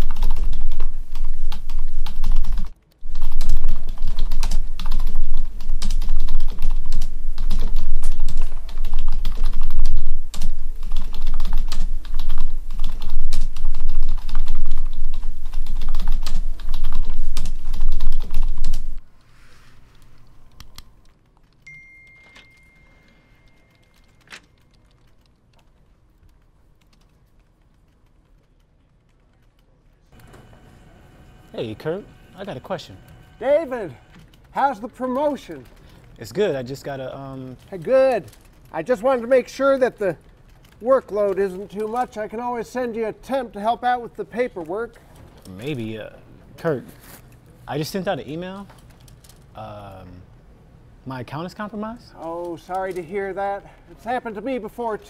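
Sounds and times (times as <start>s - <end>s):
rapid typing on a keyboard: 0.0s - 19.0s, 19.9s - 30.6s, 32.4s - 46.0s, 47.7s - 49.5s, 52.2s - 55.0s
faint high tone: 21.7s - 24.1s.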